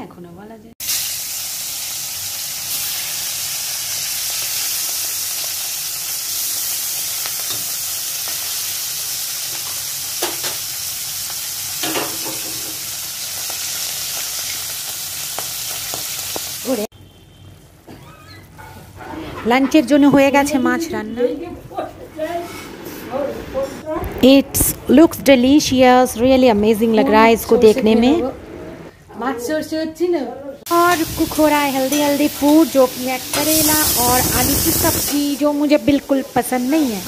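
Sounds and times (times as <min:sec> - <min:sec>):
fish sizzling in hot oil: 0:00.8 - 0:16.9, 0:30.7 - 0:37.0.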